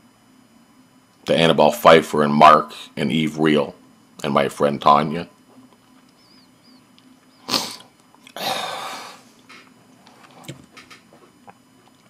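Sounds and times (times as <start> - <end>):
man's sharp breath intake: 7.4 - 9.3
man's long breathy exhale: 8.4 - 9.3.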